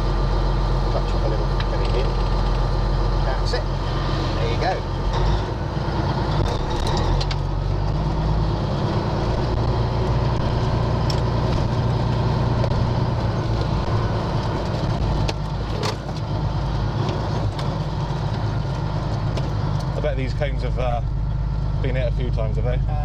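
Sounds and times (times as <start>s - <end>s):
diesel truck engine at low revs: 0.0s - 23.0s.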